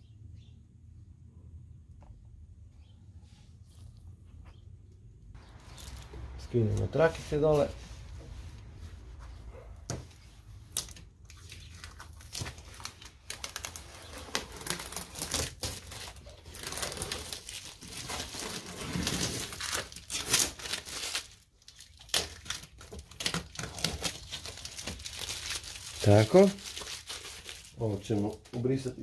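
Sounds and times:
tape crinkling and tearing: 10.6 - 29.0.

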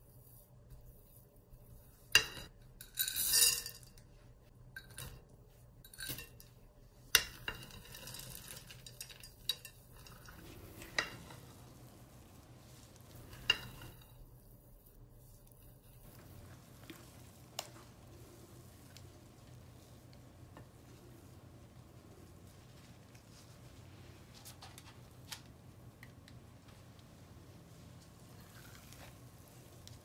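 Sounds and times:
spatula clinking glass bowl: 7.2 - 14.2
spatula scraping dough: 7.2 - 22.6.

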